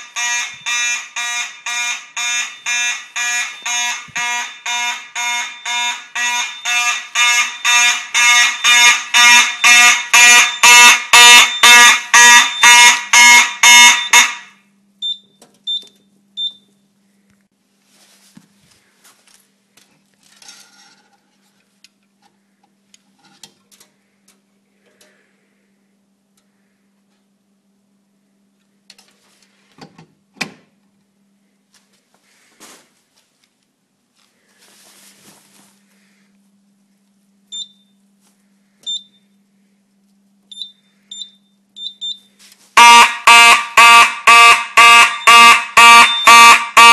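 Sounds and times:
fire alarm horns: 0.0 - 15.8, 42.8 - 46.9.

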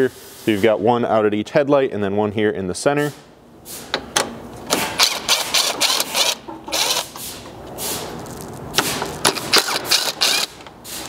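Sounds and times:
impact driver bursts: 4.7 - 7.4, 8.0 - 11.0.

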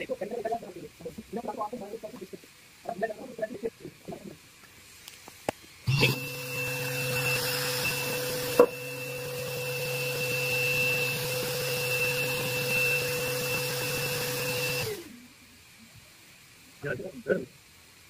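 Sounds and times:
orbital sander whining: 5.8 - 15.2.

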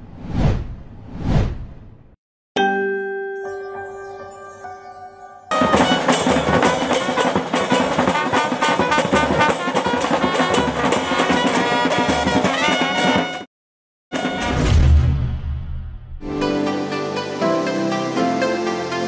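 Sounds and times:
chime: 2.6 - 5.6
brass band playing: 5.5 - 13.5.

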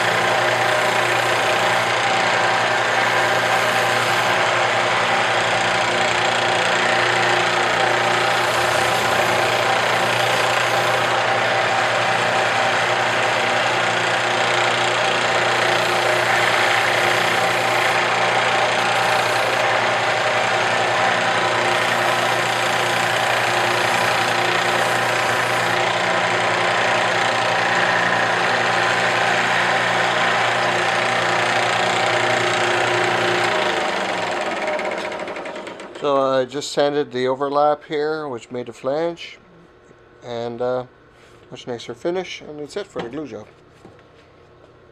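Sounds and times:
belt sander motor humming: 0.0 - 36.2
sole sanding against belt: 3.0 - 4.5, 8.2 - 11.1.

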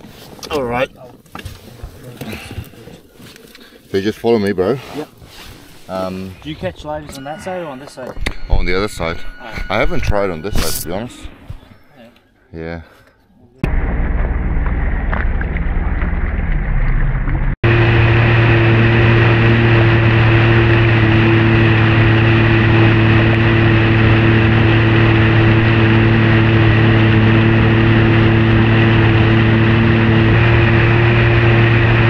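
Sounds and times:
jet ski engine drone: 13.7 - 32.0.

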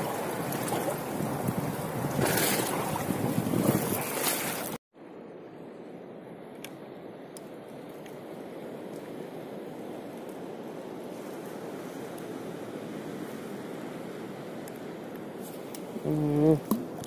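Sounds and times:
steady wash of water: 0.0 - 4.8
water lapping against hull: 0.0 - 4.8
wind buffeting microphone: 0.0 - 4.8.

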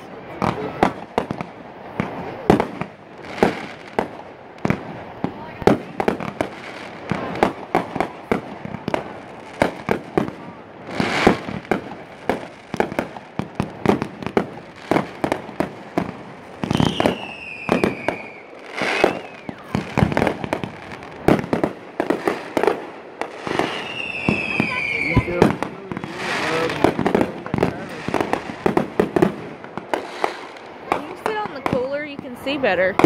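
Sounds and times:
fireworks bangs and crackles: 0.0 - 33.0
fireworks booming bursts: 0.0 - 33.0
whistling firework shells: 5.6 - 31.9.

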